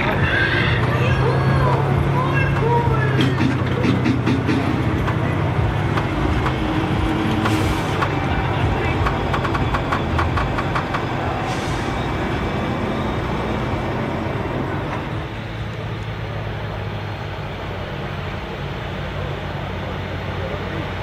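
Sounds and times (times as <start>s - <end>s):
tractor engine running: 0.0s - 21.0s
rapid clicks: 2.6s - 11.3s.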